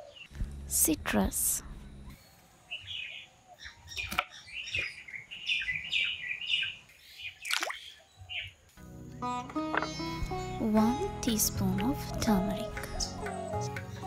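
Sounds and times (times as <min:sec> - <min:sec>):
small birds chirping: 0:00.0 - 0:08.7, 0:09.3 - 0:14.0
fruit splashing into water: 0:07.4 - 0:07.9.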